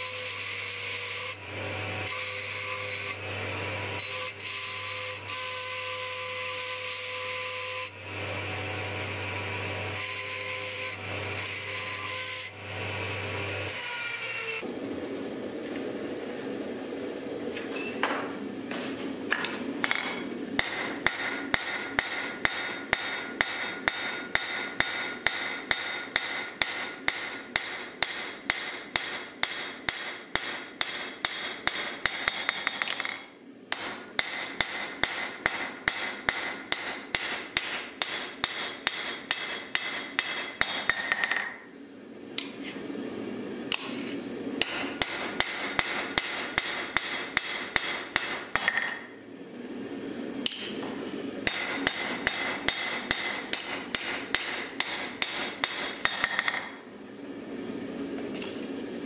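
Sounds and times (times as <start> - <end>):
hammer striking metal on anvil: 19.4 - 41.6, 44.6 - 49.1, 51.4 - 56.8.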